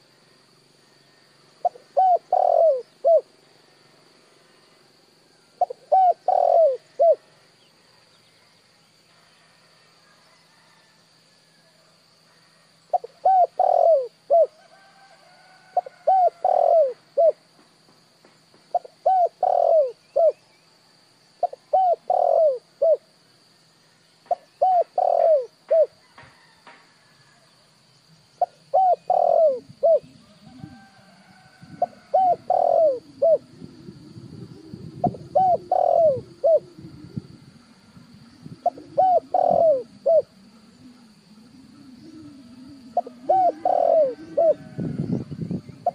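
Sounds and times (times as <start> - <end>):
dove cooing: 1.6 - 3.3, 5.6 - 7.4, 12.9 - 14.8, 15.6 - 17.4, 18.7 - 20.4, 21.4 - 23.1, 24.3 - 26.3, 28.4 - 45.9.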